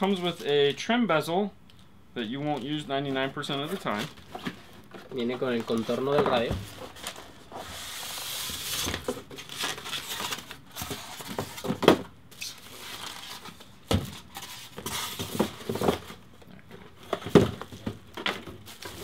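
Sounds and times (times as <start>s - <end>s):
cardboard rustling and sliding: 3.2s - 11.8s.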